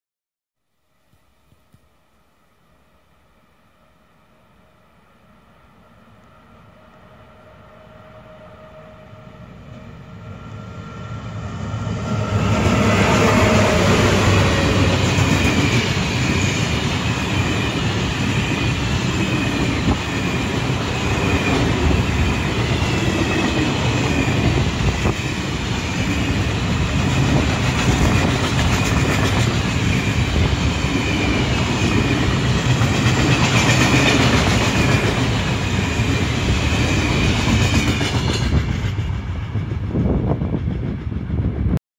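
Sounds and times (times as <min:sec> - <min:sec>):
freight train passing: 0:02.4 - 0:41.8.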